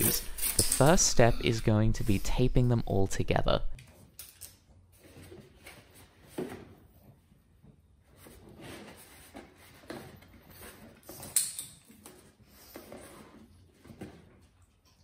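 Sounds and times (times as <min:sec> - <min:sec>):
cardboard boxes rustling and scraping: 0:08.0 - 0:11.2.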